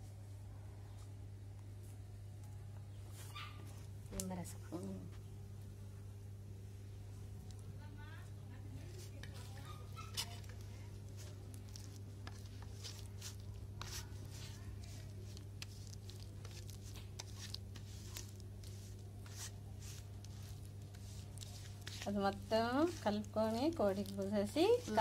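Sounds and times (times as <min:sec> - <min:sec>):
low steady hum: 0:00.0 - 0:25.0
fingers squishing wet paste: 0:09.0 - 0:25.0.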